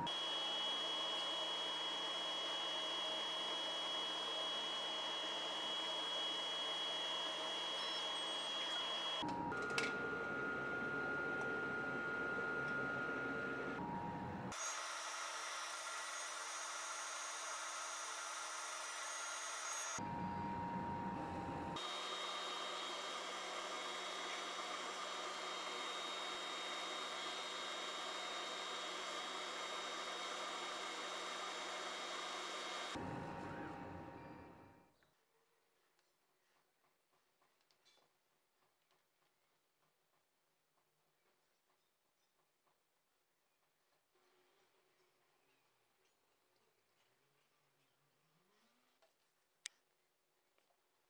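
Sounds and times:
laser cutter hiss and whine: 0.0 - 9.3, 14.5 - 33.8
lower whine: 0.0 - 14.5, 16.5 - 34.8.

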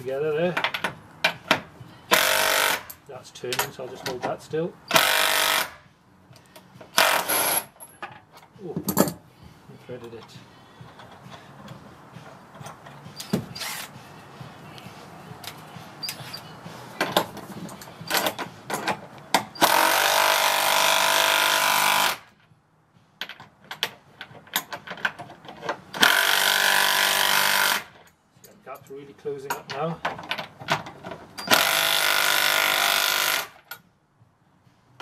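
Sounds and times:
metal clinks and knocks: 0.4 - 1.7, 2.8 - 4.5, 6.4 - 9.3, 10.1 - 13.6, 15.4 - 19.6, 23.2 - 26.0
impact wrench hammering: 1.3 - 3.0, 4.9 - 5.8, 18.0 - 22.2, 26.0 - 27.9, 31.4 - 33.6.

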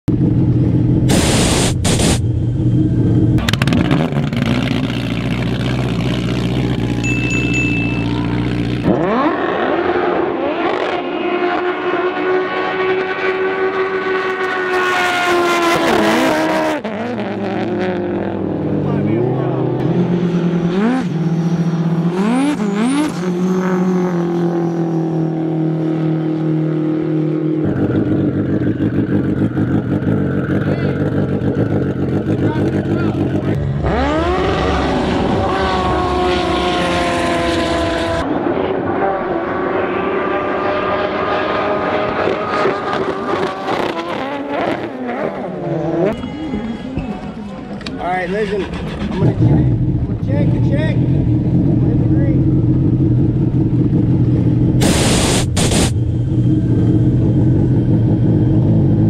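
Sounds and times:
loud hissing blasts: 1.1 - 2.3, 54.8 - 56.1
jet ski engine: 4.3 - 9.3, 45.9 - 59.0
jet ski engine revving: 27.8 - 38.2.

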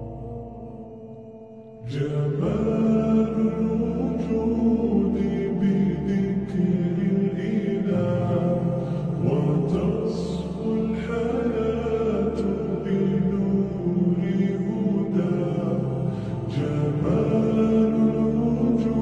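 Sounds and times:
drone-like background music: 0.0 - 19.0.

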